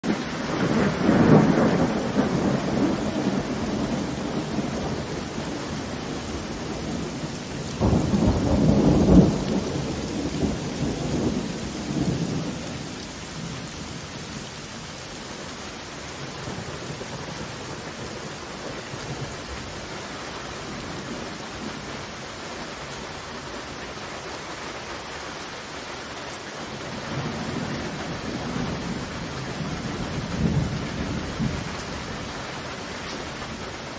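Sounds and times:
rolling thunder: 0.0s - 14.0s, 26.8s - 32.5s
heavy rain falling: 0.0s - 33.9s.

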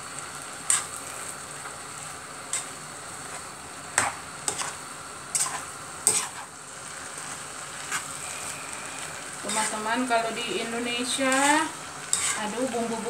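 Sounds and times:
food sizzling in pot: 0.0s - 13.0s
utensil scraping and knocking pot: 11.3s - 12.5s.

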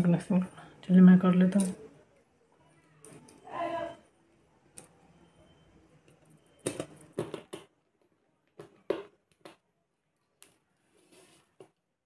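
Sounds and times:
soft rustle: 10.6s - 11.8s.

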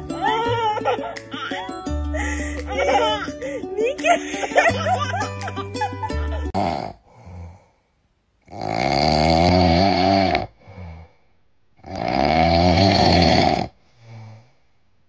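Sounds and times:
dog snoring: 8.5s - 11.1s, 11.8s - 13.8s.

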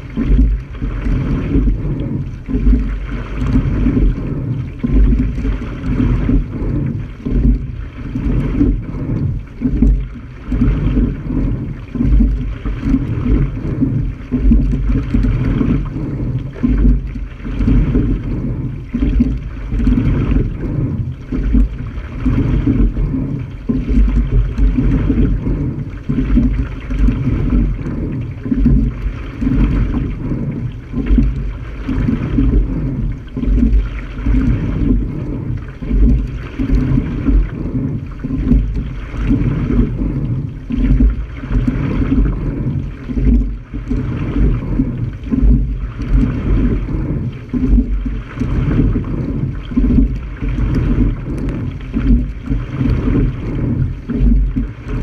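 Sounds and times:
water rushing along hull: 0.0s - 55.0s.

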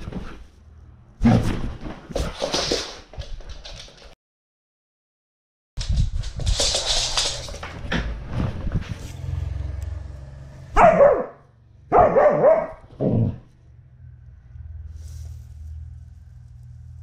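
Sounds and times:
dog barking: 10.7s - 13.4s
rustling and scuffing: 14.9s - 17.0s.

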